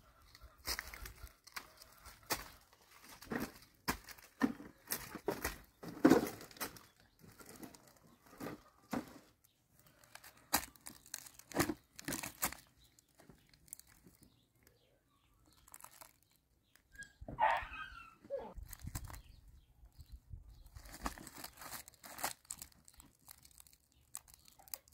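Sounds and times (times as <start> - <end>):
footsteps on dry leaves: 0.2 - 9.2, 9.8 - 14.2, 15.6 - 16.2, 20.6 - 24.9
plastic sack rustling: 0.6 - 14.3, 15.5 - 16.3, 20.6 - 24.9.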